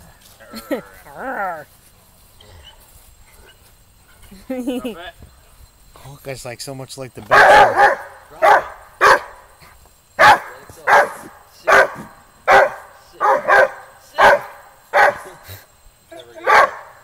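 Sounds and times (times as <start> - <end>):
dog barking: 7.3 - 9.4, 10.2 - 15.4, 16.4 - 17.0.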